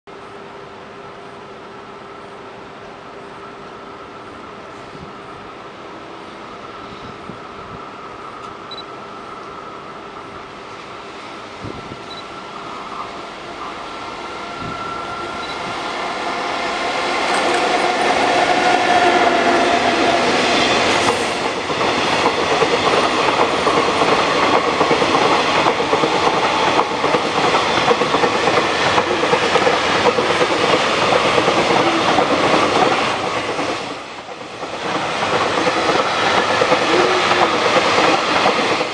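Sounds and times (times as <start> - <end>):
train rumble: 0.2 - 38.9
wheels clattering on rails: 11.6 - 38.9.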